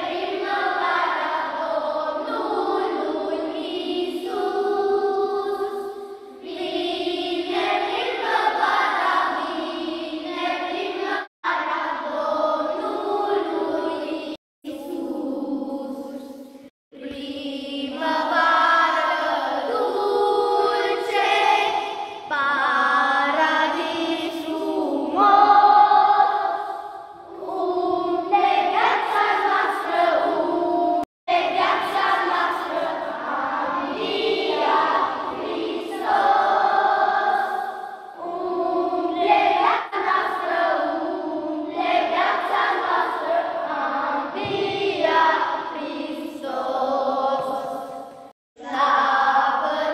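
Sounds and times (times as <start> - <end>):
children's choir singing a hymn: 0.0 - 49.9.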